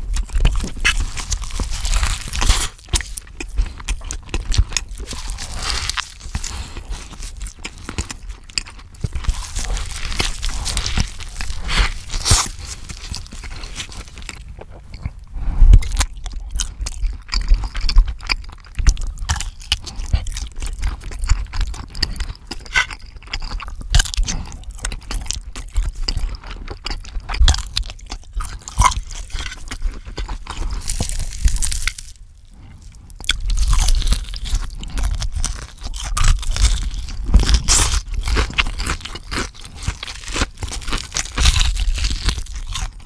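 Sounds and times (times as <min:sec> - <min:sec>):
crackling mouth noises: 0:00.0 - 0:43.0
wet chewing: 0:00.0 - 0:43.0
loud bites into food: 0:00.5 - 0:08.2, 0:09.0 - 0:14.4.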